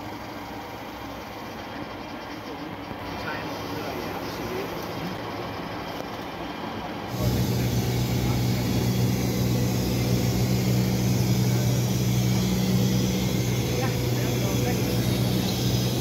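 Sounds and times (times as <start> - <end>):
airliner cabin air and engine noise: 0.0 - 16.0
low drone with hum: 7.1 - 16.0.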